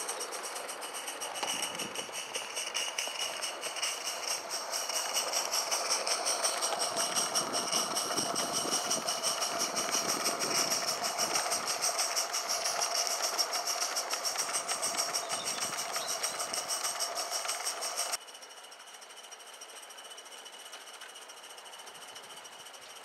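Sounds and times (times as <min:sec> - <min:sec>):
steam exhaust beats: 0:00.0 - 0:18.2
whir of wheels on track: 0:00.0 - 0:23.0.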